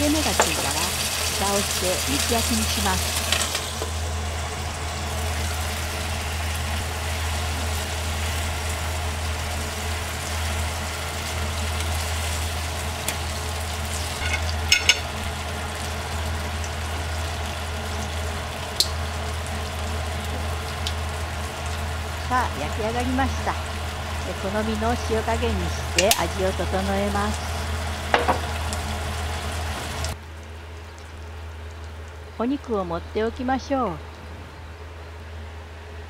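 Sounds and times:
meat sizzling in oil: 0.0s - 30.2s
low hum: 0.0s - 36.0s.

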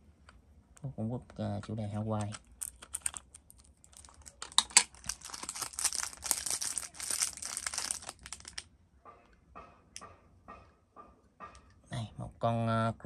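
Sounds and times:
packaging crinkling and rustling: 2.2s - 8.7s.

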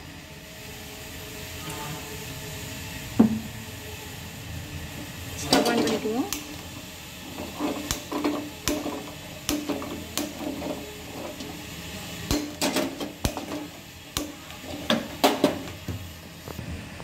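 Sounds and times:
metal utensil tapping on pan: 7.8s - 10.7s.

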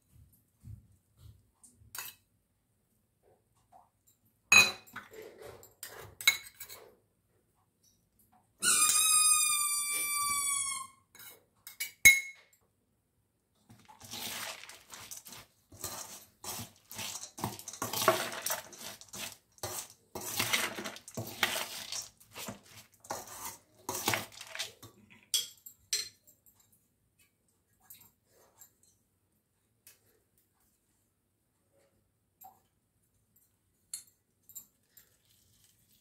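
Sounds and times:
spoon scraping puffed rice: 13.7s - 25.0s, 35.0s - 36.0s.

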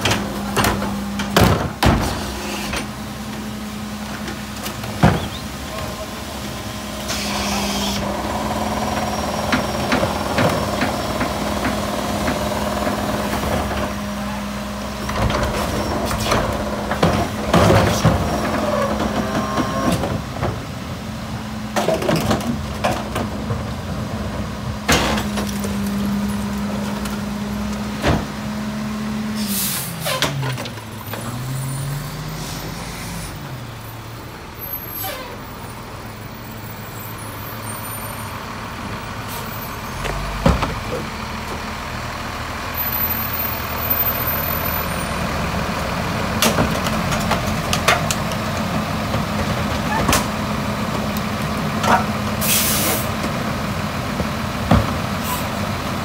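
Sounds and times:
garbage truck diesel engine: 0.0s - 56.0s
air brake hiss: 29.4s - 30.2s, 52.4s - 53.1s.

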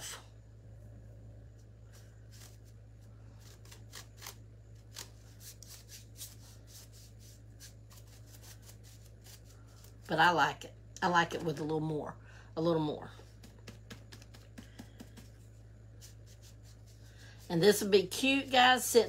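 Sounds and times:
brush scratching on metal: 16.0s - 18.8s.

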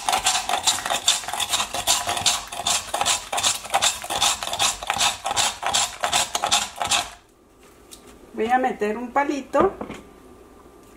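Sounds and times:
ice shaver scraping ice: 0.0s - 7.2s.

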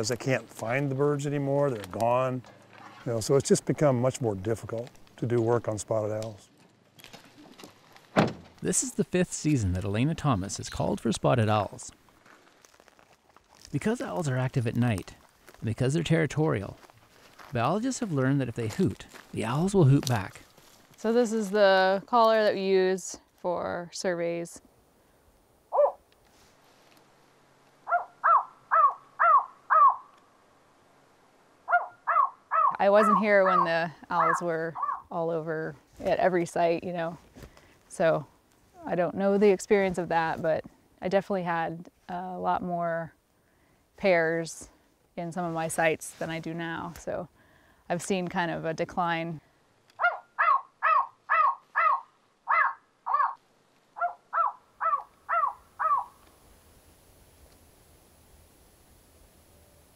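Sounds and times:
owl calls through a speaker: 27.9s - 30.1s, 31.7s - 35.1s, 50.0s - 53.4s, 54.0s - 56.2s
recorded owl hoots from speaker: 54.0s - 56.2s.

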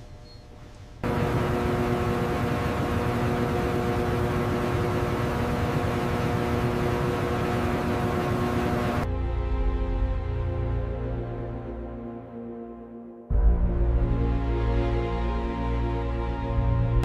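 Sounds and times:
mechanical drone with hiss: 1.0s - 9.0s
humming tones: 1.0s - 9.1s.

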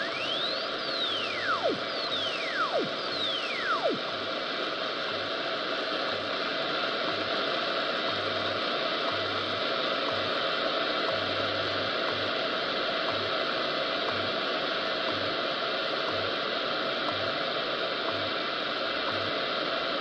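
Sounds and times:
low pulsing hum: 0.0s - 4.2s
radio static hiss: 0.0s - 19.4s
faint ticks: 10.0s - 12.4s, 13.0s - 13.4s, 14.0s - 14.4s, 16.1s - 16.4s, 17.0s - 17.4s, 18.0s - 18.4s.

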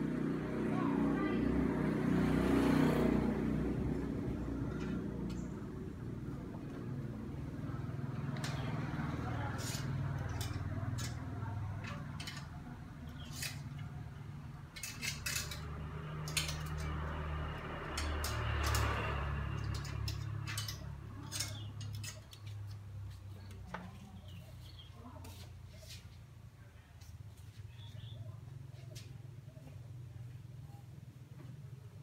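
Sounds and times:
clothes hangers clicking: 9.5s - 22.8s.

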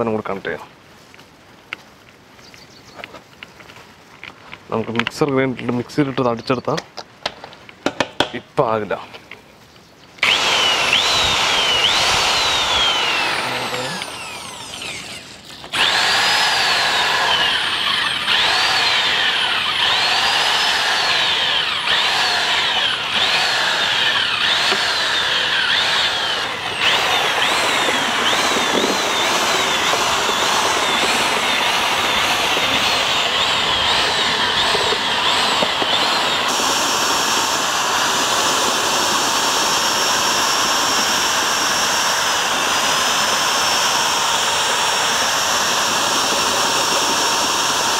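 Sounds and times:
electric mixer motor whine: 10.2s - 47.9s.

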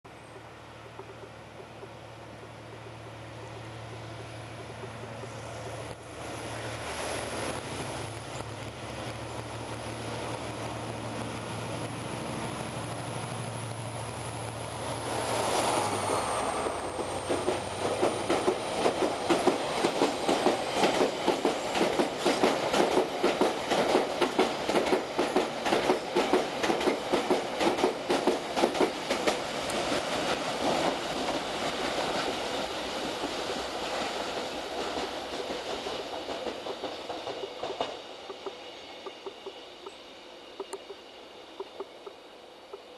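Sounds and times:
locomotive engine drone and whine: 0.1s - 19.3s, 36.6s - 42.9s
wagon wheels clickety-clack: 16.9s - 32.5s.

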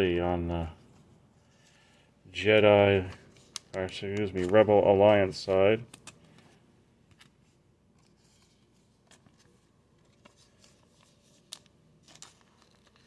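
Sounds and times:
plastic card sleeve rustling: 0.8s - 13.0s.

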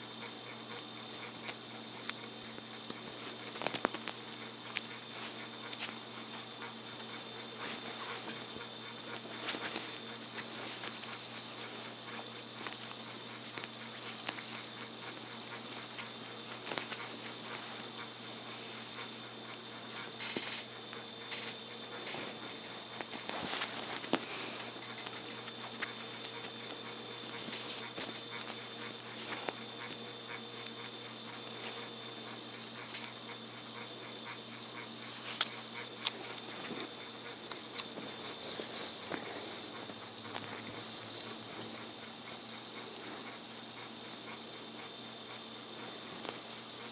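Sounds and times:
steady hum and hiss: 0.0s - 46.9s
small clicks and taps: 1.2s - 5.0s
paws pattering on fabric: 2.9s - 20.0s, 21.8s - 32.0s, 35.0s - 41.8s
kitten rustling on comforter: 9.2s - 12.8s, 22.0s - 28.5s.

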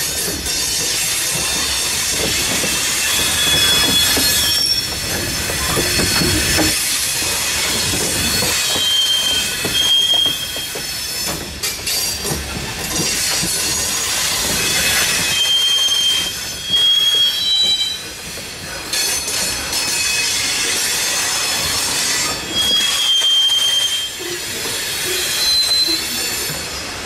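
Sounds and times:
freight train cars rumbling: 0.0s - 27.0s
high-pitched wheel squeals: 3.0s - 6.5s, 8.2s - 10.9s, 14.6s - 18.1s, 22.2s - 26.8s.

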